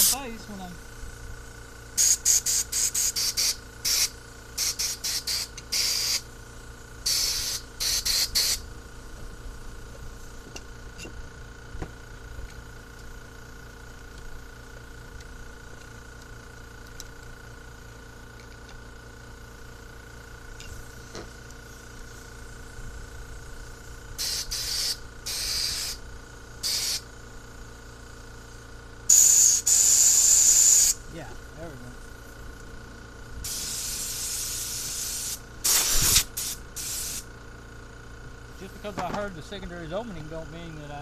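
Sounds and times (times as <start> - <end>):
compressed air blow gun hissing: 2.0 - 6.3, 7.0 - 8.6, 24.1 - 26.0, 26.6 - 27.1, 29.1 - 31.0, 33.4 - 37.3.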